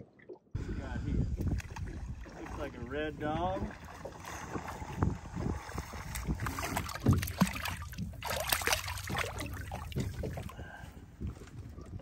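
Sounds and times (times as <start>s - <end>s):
water slapping against a hull: 1.2s - 12.0s
fish splashing at the surface: 3.7s - 10.5s.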